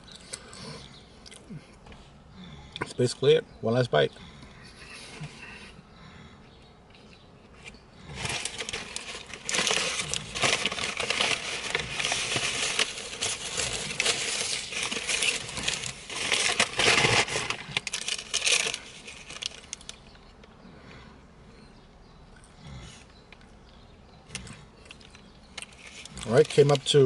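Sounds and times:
paper napkin crinkling and rustling: 8.2 - 20.0, 25.6 - 27.0.

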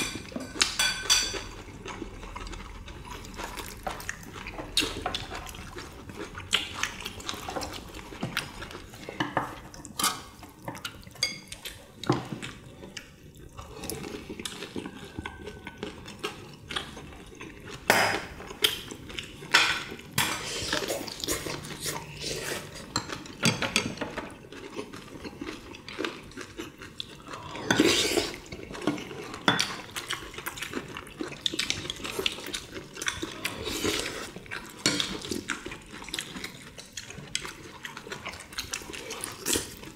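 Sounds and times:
utensils clinking against bowls: 0.0 - 1.7.

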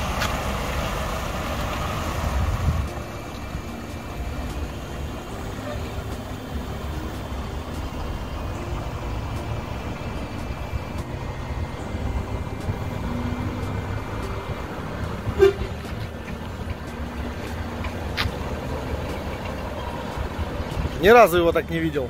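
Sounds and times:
truck diesel engine running: 0.0 - 22.0
truck horn toot: 5.4 - 6.3, 15.2 - 16.0.

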